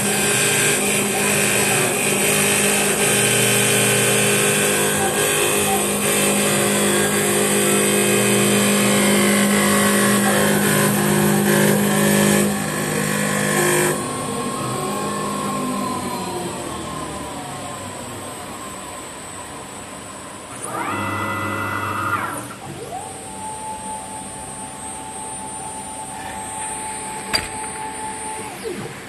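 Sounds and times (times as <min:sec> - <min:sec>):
lathe cutter shaving wood: 0:00.0 - 0:17.5, 0:20.5 - 0:22.6
lathe motor hum: 0:00.0 - 0:29.0.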